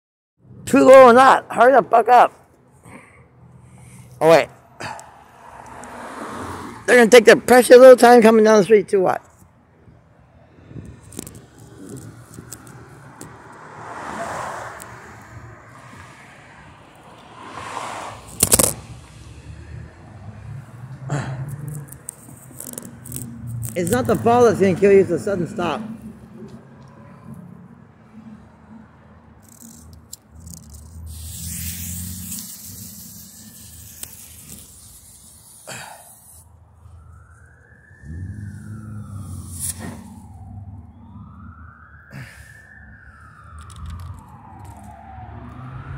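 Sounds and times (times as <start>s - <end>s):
car passing by: 4.8s - 7.1s, 12.0s - 21.9s, 30.7s - 34.9s, 37.1s - 45.9s
siren rising: 29.4s - 35.6s, 36.4s - 45.9s
firework fuse hissing: 30.9s - 36.5s.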